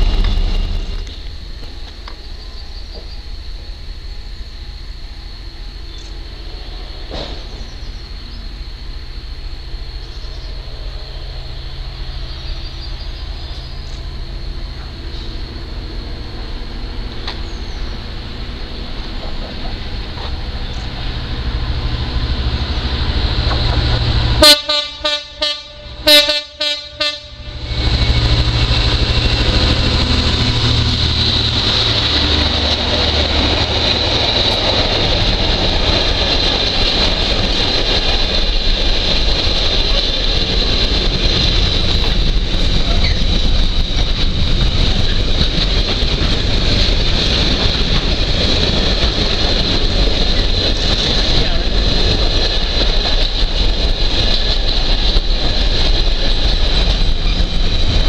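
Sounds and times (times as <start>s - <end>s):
locomotive engine hum: 0.0s - 58.0s
locomotive horn blasts: 24.3s - 27.8s
wagons rumbling and rattling: 30.5s - 58.0s.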